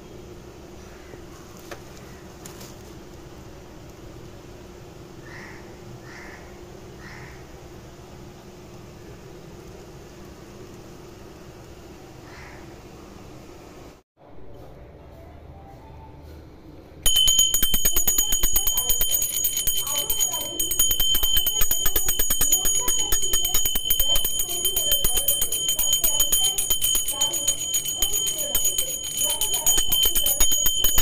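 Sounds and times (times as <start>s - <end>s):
hand bell ringing rapidly: 17.1s - 31.0s
person speaking: 17.1s - 31.0s.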